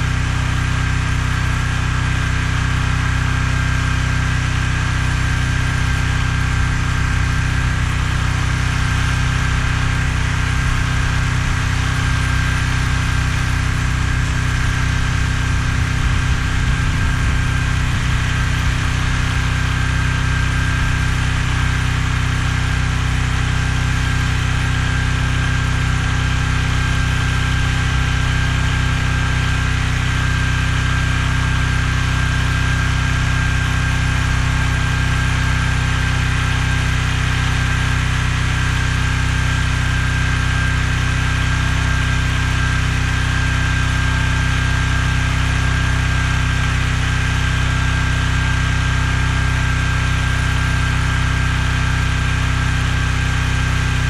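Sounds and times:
small engine running: 0.0 - 54.0
thin steady whine: 0.0 - 54.0.

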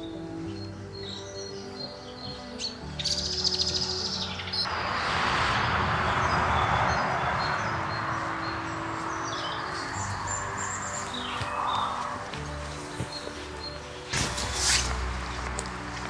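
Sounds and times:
footsteps through dry leaves: 7.3 - 16.0.

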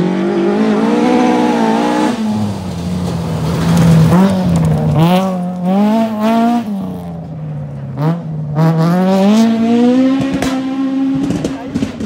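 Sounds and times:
rally car engine at full throttle: 0.0 - 12.0.

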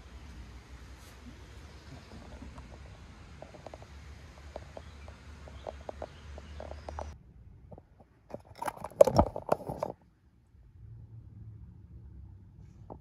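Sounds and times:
low steady hum: 0.0 - 13.0
clicks and scrapes: 1.8 - 10.0.

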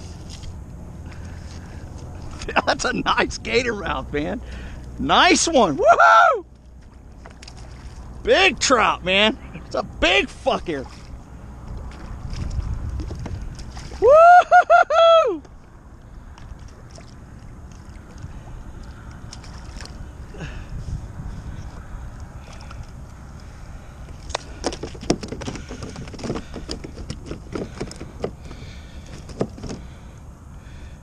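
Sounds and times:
wind and water rumble: 0.0 - 31.0
knocks and clicks handling fish: 6.8 - 7.9, 11.7 - 14.0, 24.0 - 30.0.

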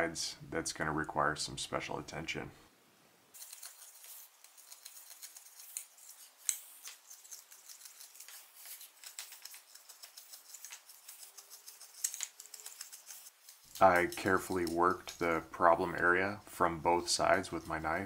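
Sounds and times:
knife scraping wood: 3.4 - 16.1.

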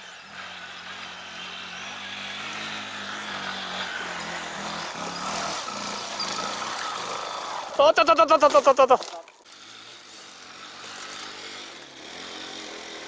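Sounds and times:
off-road motorcycle engine revving: 0.0 - 13.0.

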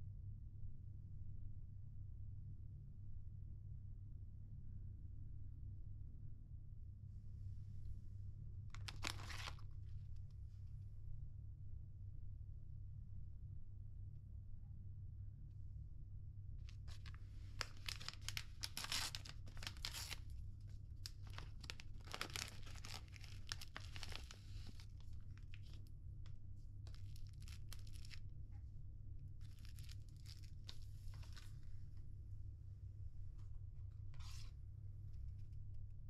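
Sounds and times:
paper sachet crinkling and tearing: 8.8 - 9.6, 16.7 - 20.4, 21.0 - 25.8, 26.8 - 28.2, 29.4 - 31.7.

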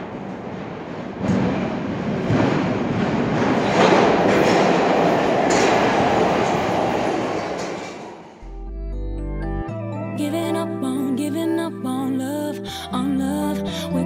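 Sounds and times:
subway train wheels rumbling: 0.0 - 8.6.

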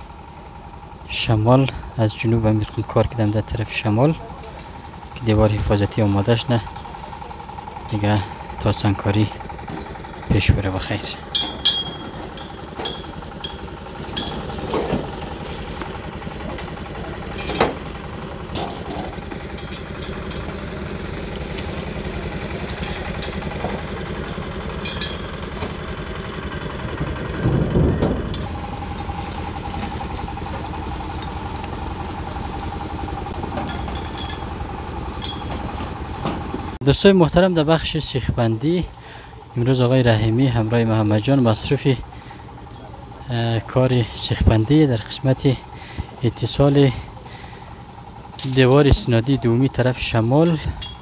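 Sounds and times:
engine running: 0.0 - 51.0
steady whine: 0.0 - 51.0
sharp clinks and knocks: 11.3 - 17.9, 18.5 - 21.8, 22.5 - 25.8, 33.4 - 36.4, 50.4 - 51.0
heavy thump: 27.4 - 28.4.

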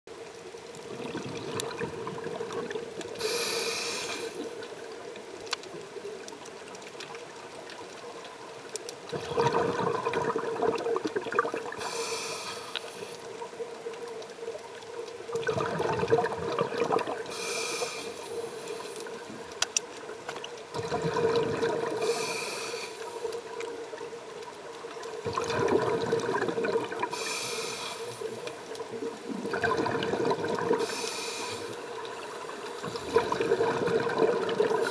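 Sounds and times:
exhaled bubbles rushing: 0.7 - 3.2, 9.1 - 11.8, 15.3 - 17.3, 20.7 - 22.1, 25.2 - 27.2, 28.8 - 30.9, 32.8 - 34.9
regulator inhalation hiss: 3.1 - 4.7, 11.8 - 13.3, 17.2 - 19.2, 22.0 - 23.4, 27.1 - 28.7, 30.8 - 33.2.

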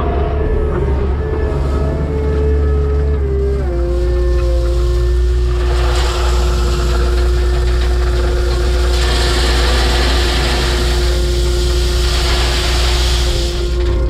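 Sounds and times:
diesel engine rumbling: 0.0 - 14.0
hissing rushing noise: 3.9 - 14.0.

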